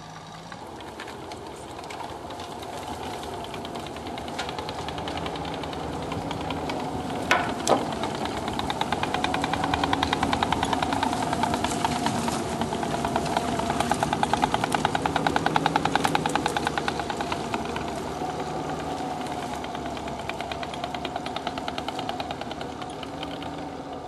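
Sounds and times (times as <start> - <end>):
tracked vehicle engine running: 0.0 - 24.0
rapid even clatter: 0.3 - 24.0.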